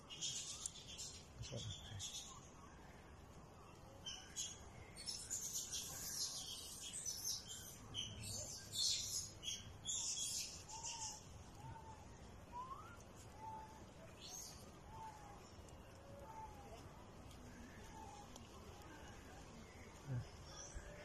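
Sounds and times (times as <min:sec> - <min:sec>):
small birds chirping: 0:00.0 - 0:21.0
low whistled bird calls: 0:04.2 - 0:15.3.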